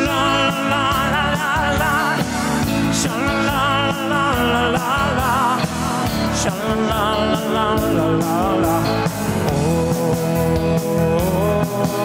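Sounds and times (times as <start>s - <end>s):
song with singing and drum beat: 0.0s - 12.0s.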